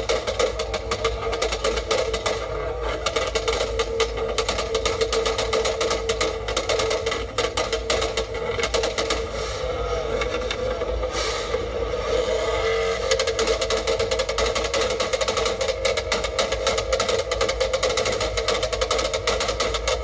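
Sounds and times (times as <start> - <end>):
car engine droning at high revs: 0.0 - 20.0.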